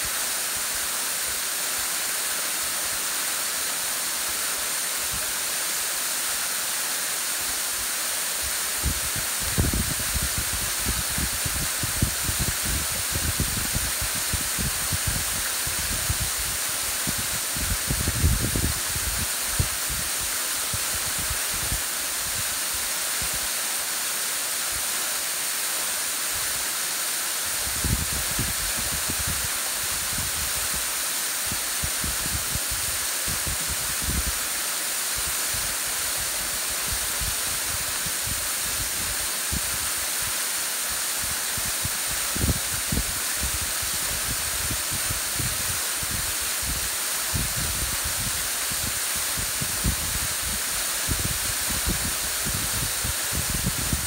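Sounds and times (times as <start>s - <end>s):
waterfall rushing: 0.0s - 54.0s
wind rumbling on microphone: 8.4s - 22.6s, 27.5s - 34.4s, 35.2s - 40.3s, 41.2s - 54.0s.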